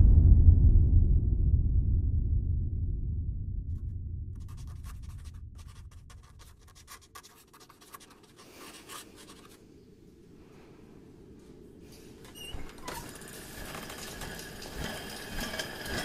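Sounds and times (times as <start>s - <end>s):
low rumble: 0.0s - 6.9s
pen scratching on paper: 4.4s - 9.6s.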